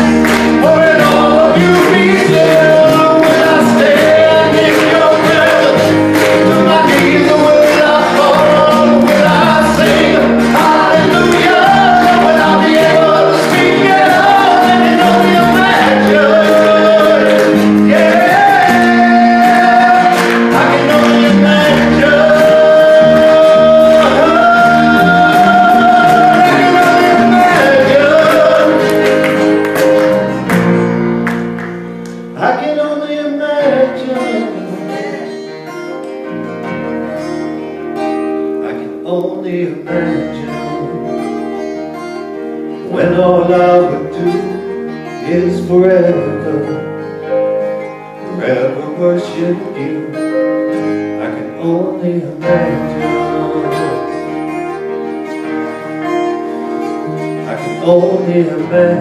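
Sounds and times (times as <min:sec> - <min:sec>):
man singing wordlessly: 0:00.0 - 0:29.2, 0:32.4 - 0:35.6, 0:38.6 - 0:41.4, 0:42.8 - 0:46.9, 0:48.2 - 0:50.4, 0:51.1 - 0:54.5, 0:57.4 - 0:59.0
acoustic band playing: 0:00.0 - 0:59.0.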